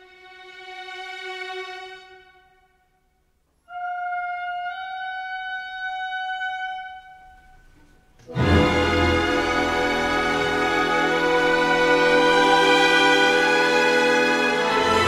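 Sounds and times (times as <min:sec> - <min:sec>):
orchestral film score: 0:08.2 - 0:15.0.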